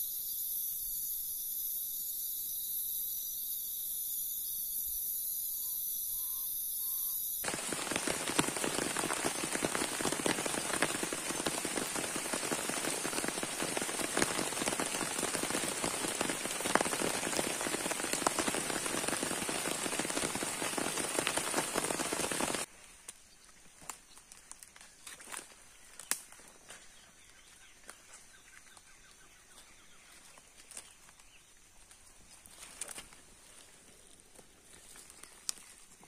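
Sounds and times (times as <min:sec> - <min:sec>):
crickets chirring: 0:00.0 - 0:22.7
heavy rain falling: 0:07.4 - 0:22.7.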